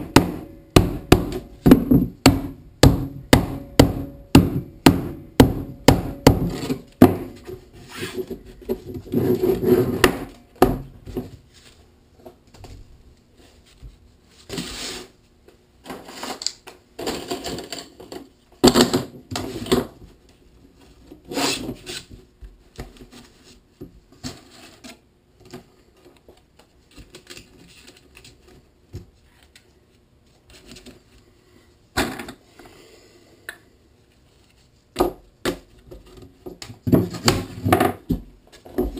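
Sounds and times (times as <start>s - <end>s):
plastic pipes knocking on wood: 0.0s - 7.4s.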